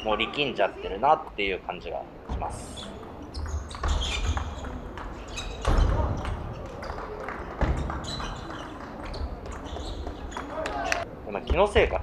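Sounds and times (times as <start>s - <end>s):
murmur of voices: 4.2s - 12.0s.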